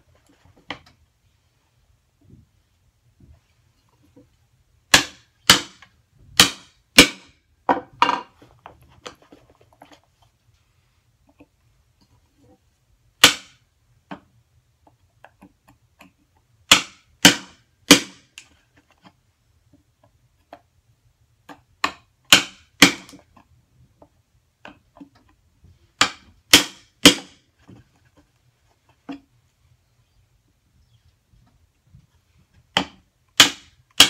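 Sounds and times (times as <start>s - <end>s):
hammer striking chisel into wood: 4.9s - 7.4s, 13.2s - 13.6s, 16.7s - 18.3s, 21.8s - 23.2s, 26.0s - 27.4s, 32.8s - 34.0s.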